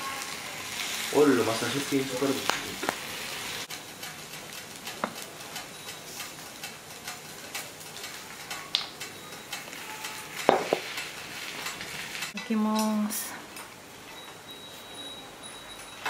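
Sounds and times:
batter sizzling on hot plate: 0.0s - 16.0s
light clicks and ticks: 3.7s - 13.7s.

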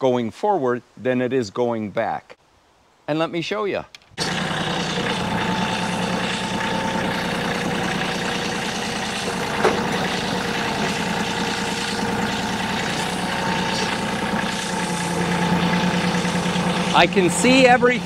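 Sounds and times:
tractor diesel engine running: 4.2s - 18.0s.

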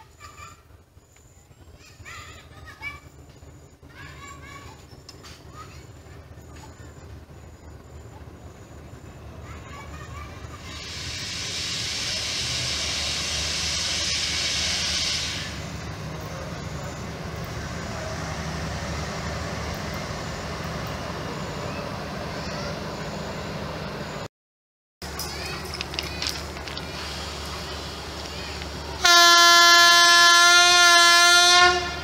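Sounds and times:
locomotive rumble: 0.0s - 24.3s, 25.0s - 32.0s
loud high hiss: 10.4s - 20.4s, 26.8s - 30.8s.

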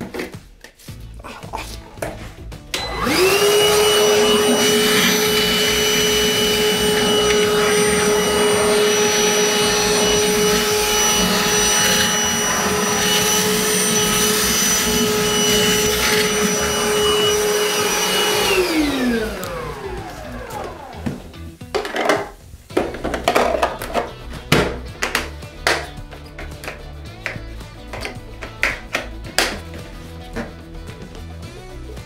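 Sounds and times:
vacuum motor winding down: 2.7s - 21.3s
wet dry vacuum running: 2.7s - 21.4s.

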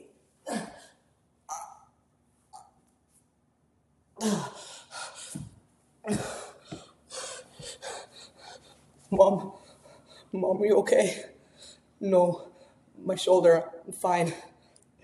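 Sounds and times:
boy gasping sobs: 4.2s - 8.7s.

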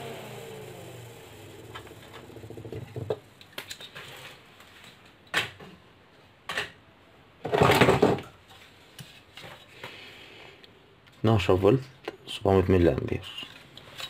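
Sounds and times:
cooling fan motor hum: 0.0s - 3.2s.

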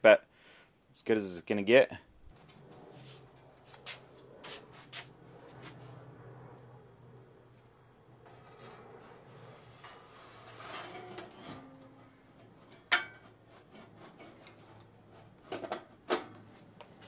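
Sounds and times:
metal cabinet scraping: 8.2s - 16.4s.

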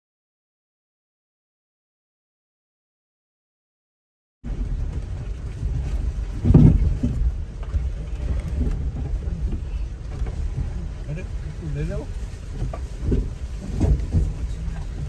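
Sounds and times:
vehicle rumbling off-road: 4.4s - 15.0s
vehicle thump: 4.5s - 15.0s.

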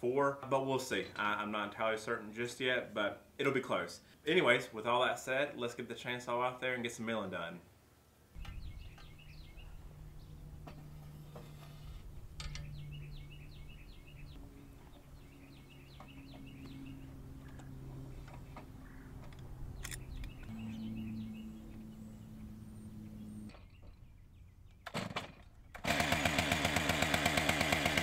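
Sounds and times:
low steady hum: 8.0s - 24.8s
small birds chirping: 8.4s - 25.9s
sharp clicks and knocks: 10.6s - 12.8s.

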